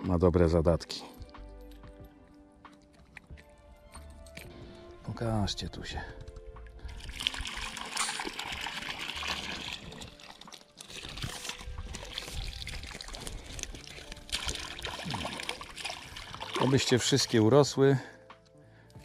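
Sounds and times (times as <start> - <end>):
water pouring and trickling: 2.7 - 4.6, 6.6 - 17.9.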